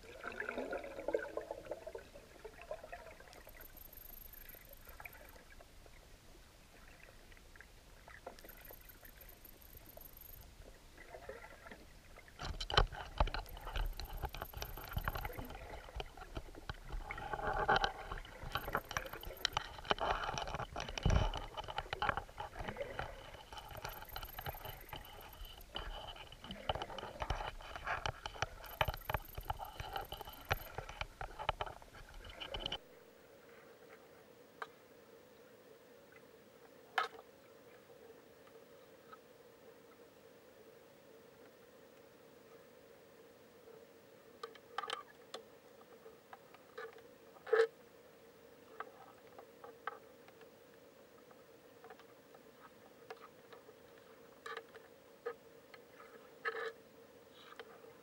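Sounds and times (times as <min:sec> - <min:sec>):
faint underwater hiss: 0:00.0 - 0:58.0
irregular clicking and crackling: 0:03.2 - 0:05.6, 0:08.1 - 0:10.5, 0:11.2 - 0:32.8
faint steady high tone: 0:08.3 - 0:10.7.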